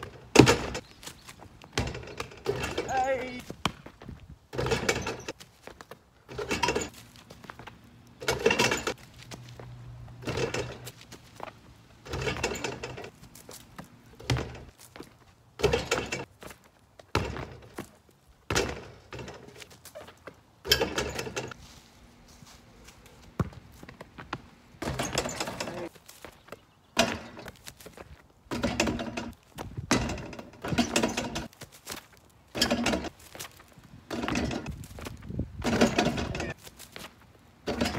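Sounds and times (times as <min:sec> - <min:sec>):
basketball hoop rattling: 0:00.0 - 0:00.8, 0:01.8 - 0:03.4, 0:04.5 - 0:05.4, 0:06.3 - 0:09.0, 0:10.1 - 0:14.8, 0:15.6 - 0:16.3, 0:17.1 - 0:17.8, 0:18.5 - 0:19.8, 0:20.6 - 0:21.6, 0:23.4 - 0:26.0, 0:27.0 - 0:27.6, 0:28.5 - 0:31.6, 0:32.5 - 0:33.4, 0:34.0 - 0:36.7, 0:37.6 - 0:37.9
basketball hitting rim and backboard: 0:01.8 - 0:02.9, 0:04.5 - 0:05.3, 0:14.2 - 0:14.7, 0:17.1 - 0:17.8, 0:18.5 - 0:19.5, 0:24.8 - 0:25.8, 0:28.5 - 0:29.3, 0:35.6 - 0:36.4.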